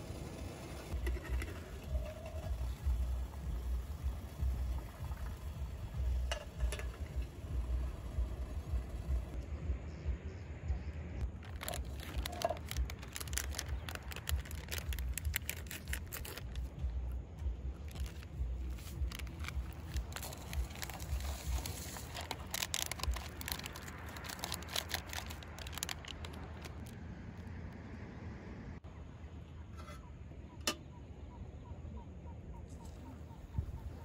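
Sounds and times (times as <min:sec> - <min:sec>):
low rumble: 0:00.0 - 0:28.8
rustling and crinkling: 0:11.3 - 0:17.0, 0:17.7 - 0:27.0.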